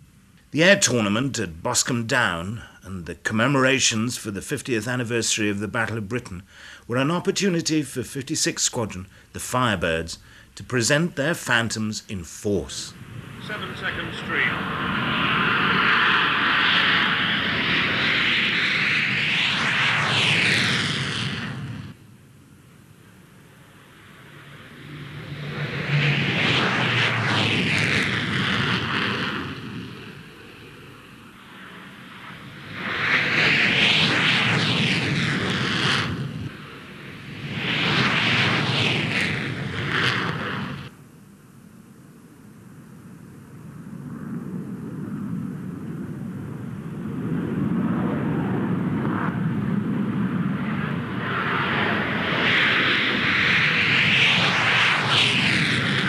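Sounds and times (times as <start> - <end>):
jet taking off roaring: 9.0 - 40.9, 43.8 - 56.0.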